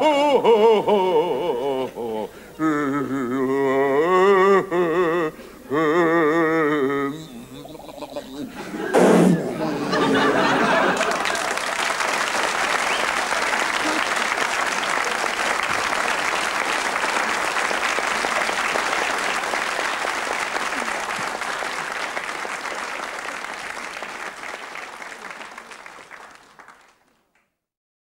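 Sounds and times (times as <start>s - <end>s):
audience applauding: 7.1s - 27.4s.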